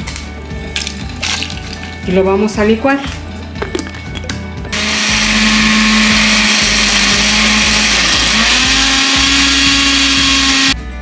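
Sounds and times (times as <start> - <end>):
blender motor running: 4.7 - 10.8.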